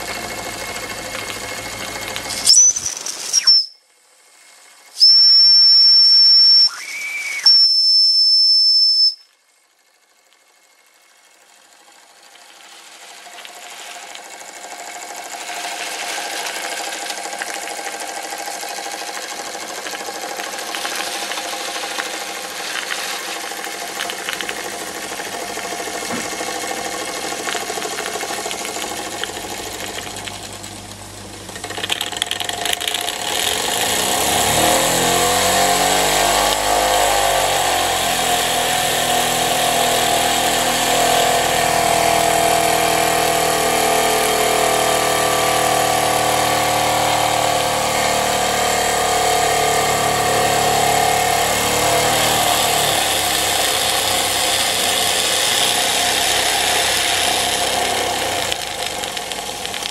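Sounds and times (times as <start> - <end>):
toy steam engine running: 0.0 - 3.6, 4.4 - 59.9
steam hissing: 20.0 - 27.4.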